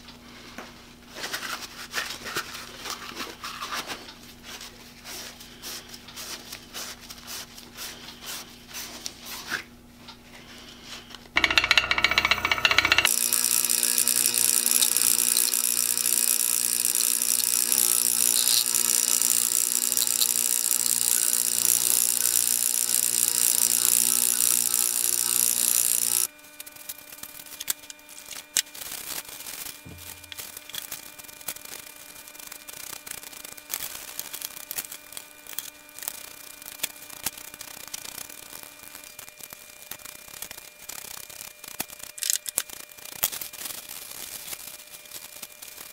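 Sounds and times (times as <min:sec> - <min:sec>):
electric motor humming: 0:11.4 - 0:38.3.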